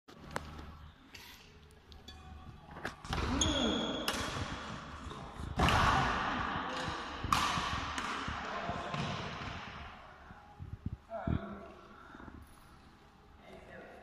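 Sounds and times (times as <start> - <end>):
rackets hitting shuttlecock: 2.1 - 9.9
shoes squeaking on floor: 2.9 - 4.1.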